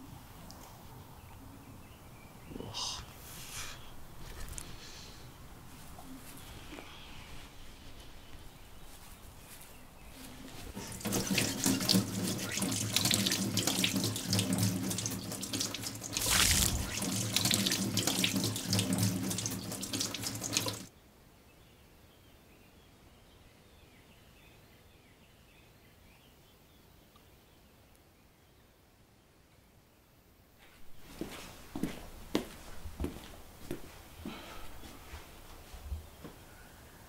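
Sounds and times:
tap water running into sink: 10.7s - 20.9s.

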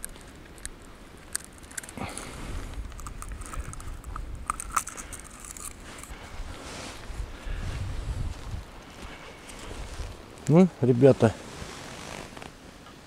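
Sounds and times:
small clicks and knocks: 0.0s - 6.1s
rustling: 0.0s - 13.0s.

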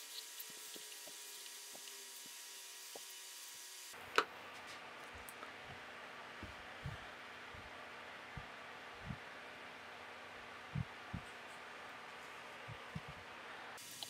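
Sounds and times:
soft low thumps: 6.4s - 7.7s, 8.4s - 9.3s, 10.7s - 11.3s, 12.7s - 13.2s.

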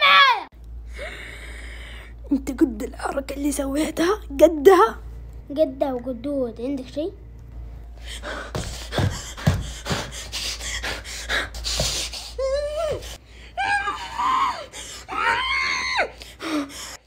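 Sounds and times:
girl's wavering cries: 12.4s - 16.2s.

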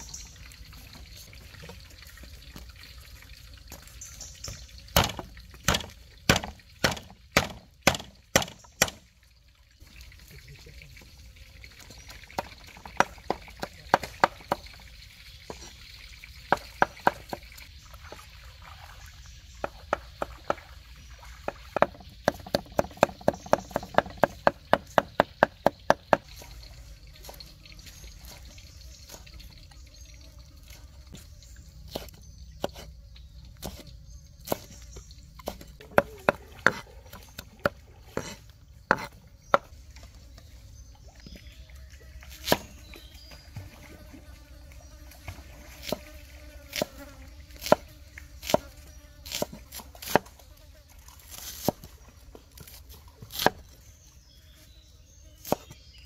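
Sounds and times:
knife chopping on cutting board: 37.6s - 39.6s.

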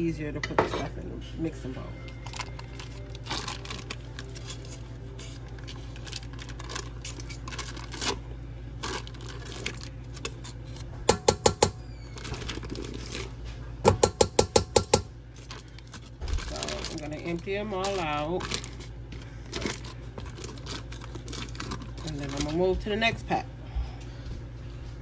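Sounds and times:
wrapper rustling and crinkling: 1.9s - 10.9s, 12.0s - 13.6s, 15.3s - 23.2s.

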